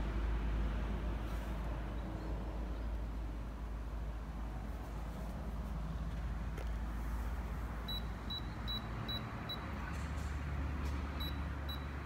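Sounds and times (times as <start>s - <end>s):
microwave keypad beeps: 7.9s - 9.6s, 11.2s - 11.9s.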